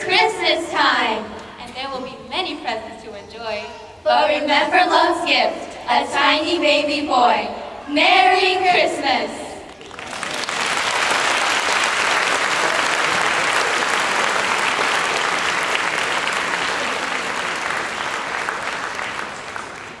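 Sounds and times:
audience applauding: 9.7s - 20.0s.

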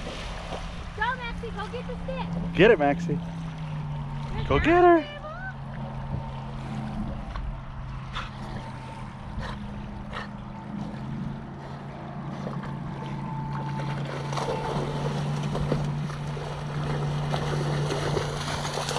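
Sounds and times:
distant motorboat engine hum: 0.0s - 18.9s
small waves lapping: 0.0s - 18.9s
dog splashing in water: 12.3s - 18.9s.

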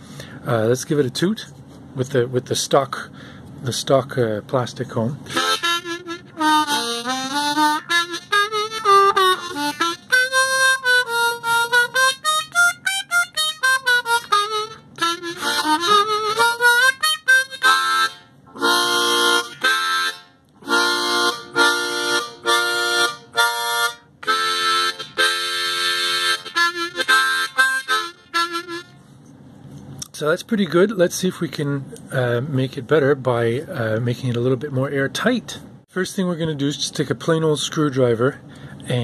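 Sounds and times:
harmonica playing: 5.3s - 29.1s.

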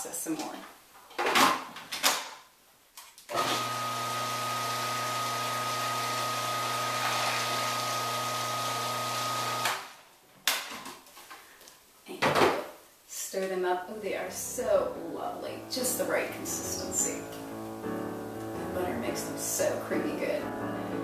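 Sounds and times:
food processor motor running: 3.4s - 9.8s.

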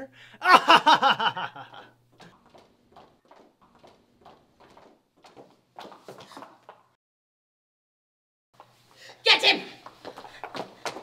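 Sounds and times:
footsteps on hard floor: 2.1s - 7.0s, 8.6s - 9.0s, 9.8s - 11.0s.

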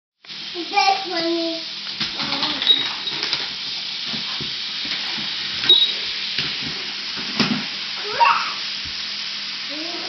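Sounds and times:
toy motor whirring: 2.2s - 3.5s.

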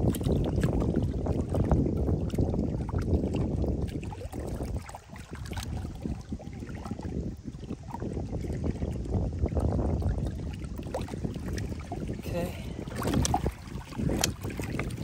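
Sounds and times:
water lapping at shore: 0.0s - 15.0s
wind rumbling on microphone: 0.0s - 15.0s
small splashes: 10.2s - 15.0s.

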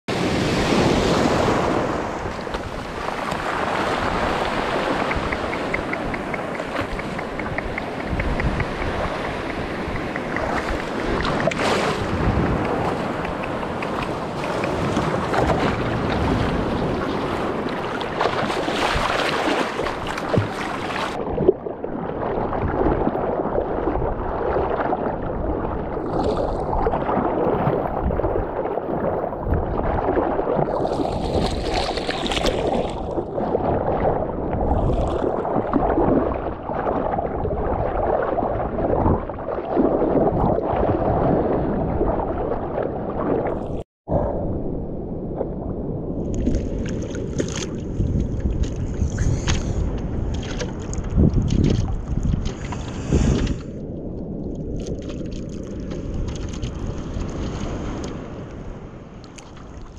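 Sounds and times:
water splashes: 0.1s - 43.8s, 46.2s - 59.9s
wind on microphone: 0.1s - 59.9s
seawater sloshing around surfboard: 1.2s - 21.2s.

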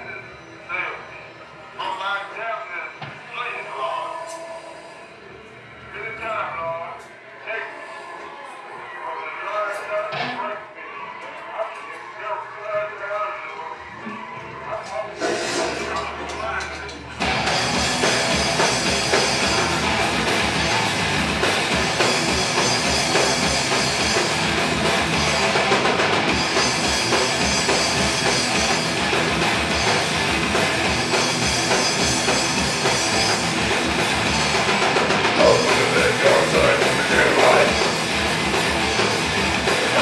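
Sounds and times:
heavy metal band playing live: 17.2s - 40.0s.

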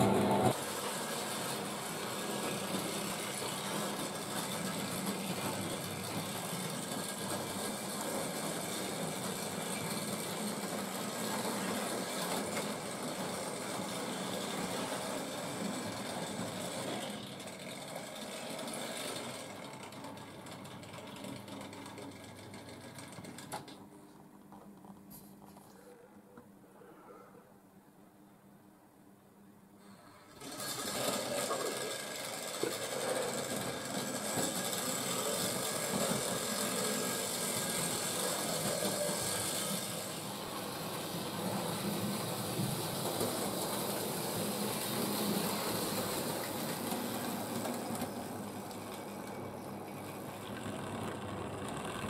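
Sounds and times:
model train wheels clattering: 0.0s - 23.8s, 30.3s - 52.0s.

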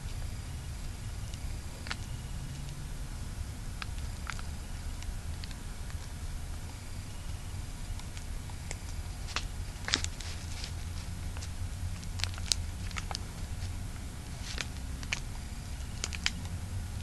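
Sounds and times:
low steady hum: 0.0s - 17.0s
paper and plastic wrapping crinkling: 7.8s - 16.6s.

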